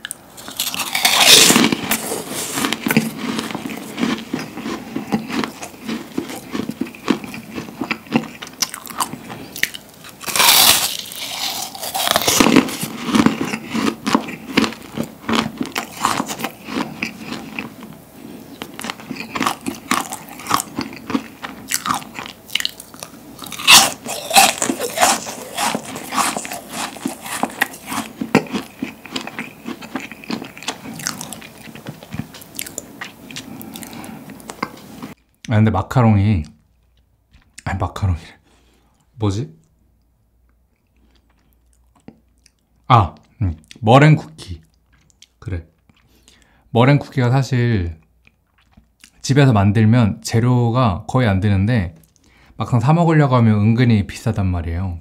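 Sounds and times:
meringue crunching while chewing: 0.0s - 35.5s, 44.6s - 46.5s, 48.2s - 49.2s.

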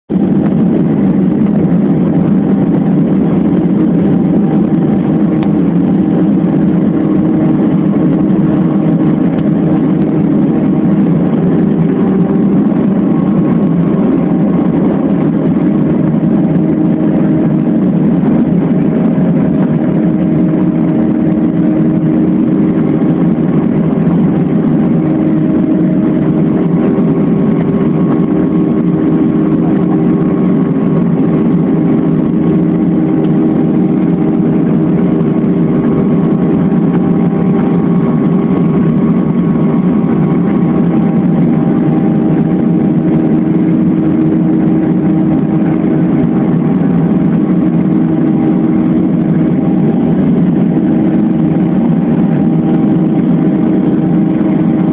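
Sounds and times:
jet engines roaring in cabin: 0.0s - 54.9s.

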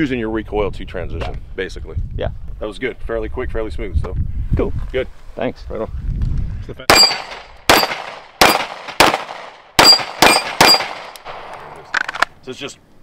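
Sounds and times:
steel target ringing: 6.9s - 8.7s, 9.8s - 11.1s
pistol shots: 6.9s - 11.5s.

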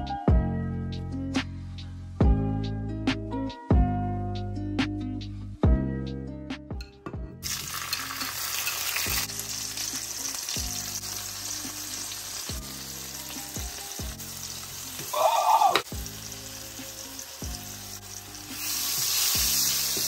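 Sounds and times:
soft background music: 0.0s - 20.0s
oil sizzling in a frying pan: 7.4s - 20.0s.

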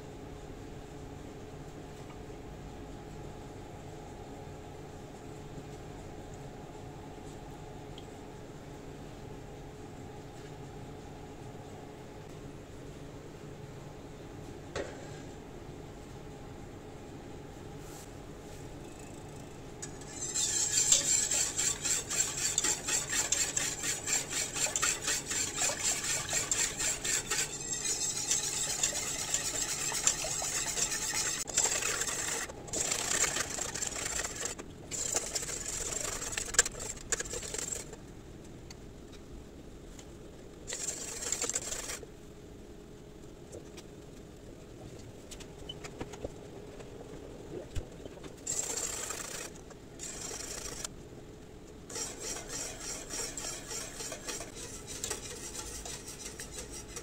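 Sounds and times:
whisk beating cream in a pot: 19.3s - 38.0s, 40.7s - 42.0s, 48.4s - 50.9s, 51.9s - 57.0s.

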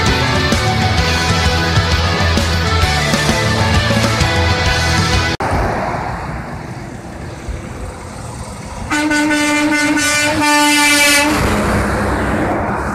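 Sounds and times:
road traffic rumble: 0.0s - 12.9s
truck air horn blast: 8.8s - 11.7s.

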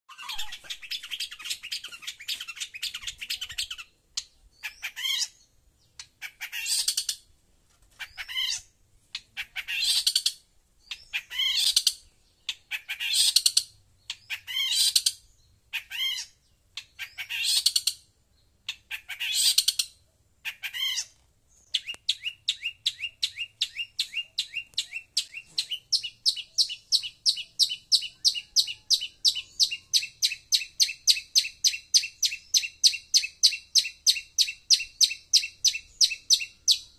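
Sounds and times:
shrike calling: 0.1s - 3.9s.

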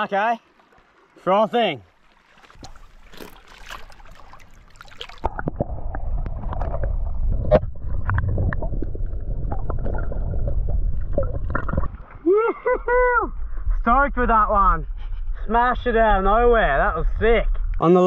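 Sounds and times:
water splashing and dripping: 1.9s - 12.2s
muffled underwater rumble: 5.2s - 17.8s.

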